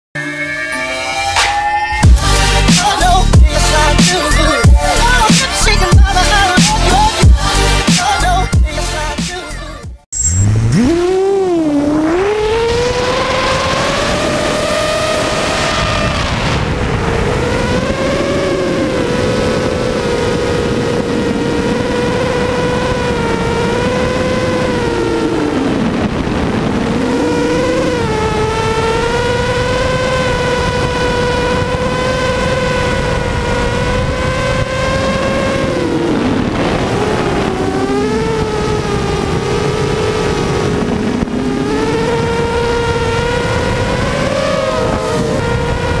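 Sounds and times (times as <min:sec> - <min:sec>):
quadcopter motors whining: 0:10.3 - 0:46.0.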